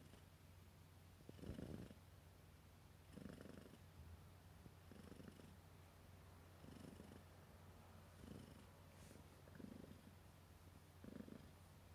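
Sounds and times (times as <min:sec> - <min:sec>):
cat purring: 0:00.0 - 0:00.3, 0:01.2 - 0:02.1, 0:03.0 - 0:04.0, 0:04.6 - 0:05.6, 0:06.5 - 0:07.4, 0:08.1 - 0:10.3, 0:10.9 - 0:11.9.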